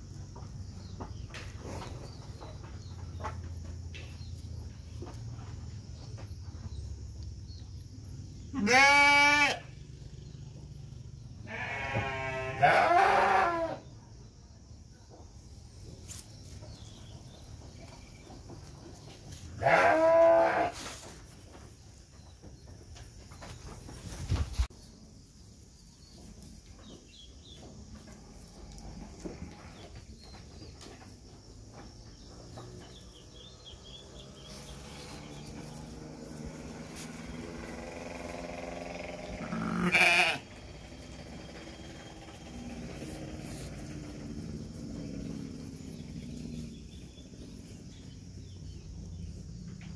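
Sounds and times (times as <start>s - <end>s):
sheep and lambs bleating: 8.5s - 9.7s, 11.4s - 13.8s, 19.6s - 20.8s, 39.2s - 40.5s.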